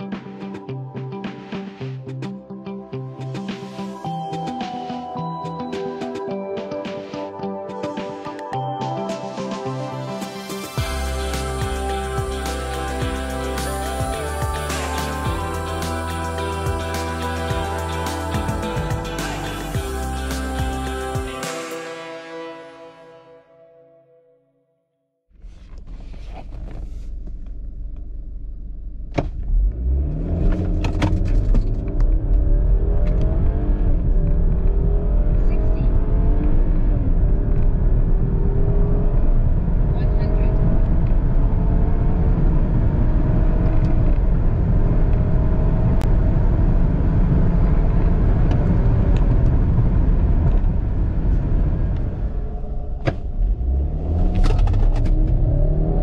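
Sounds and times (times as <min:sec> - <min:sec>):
car engine revving: 0:29.3 - 0:56.0.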